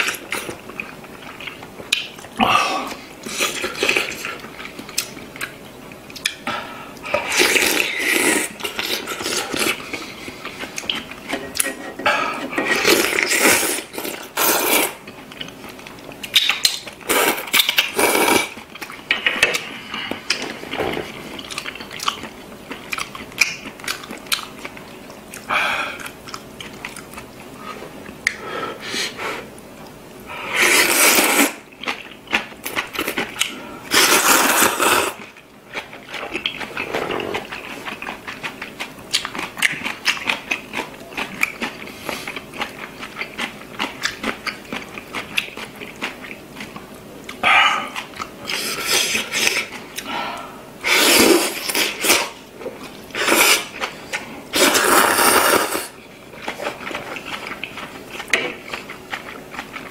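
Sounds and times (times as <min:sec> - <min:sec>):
person slurping noodles: 0:07.2 - 0:09.8, 0:12.6 - 0:15.0, 0:17.1 - 0:18.5, 0:30.4 - 0:31.6, 0:33.9 - 0:35.2, 0:50.8 - 0:52.4, 0:53.1 - 0:53.8, 0:54.5 - 0:56.0
chewing: 0:12.6 - 0:28.4, 0:31.0 - 0:50.5, 0:56.3 - 0:59.9.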